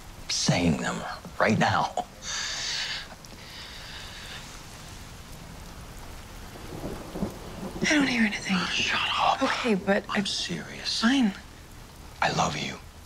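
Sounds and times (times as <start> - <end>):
steady rain falling: 0.0 - 13.0
short breathy hiss: 2.2 - 4.9.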